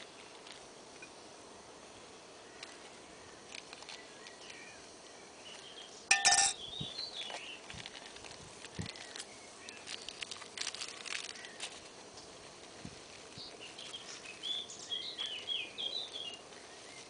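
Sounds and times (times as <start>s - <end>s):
metal spoon clinking in mug: 6.1s - 6.6s.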